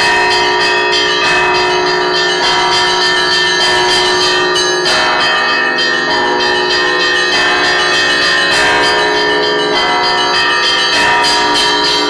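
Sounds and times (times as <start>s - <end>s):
large bells ringing: 0.0s - 12.0s
small chiming bells: 0.0s - 12.0s.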